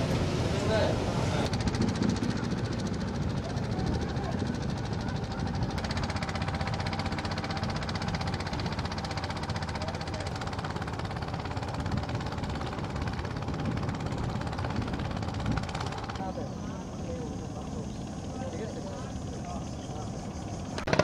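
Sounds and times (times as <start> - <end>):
boat engine knocking: 1.5 - 16.9, 20.6 - 21.0.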